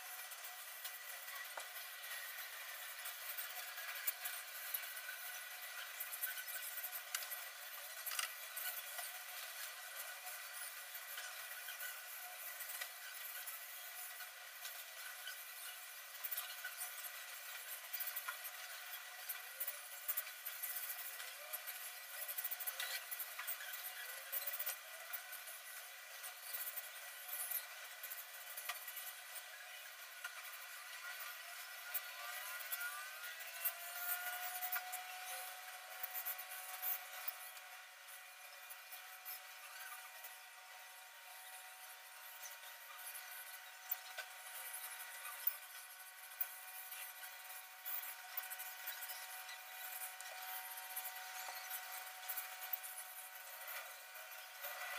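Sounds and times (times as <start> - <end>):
birds scratching and clicking in cage: 0.2 - 37.6.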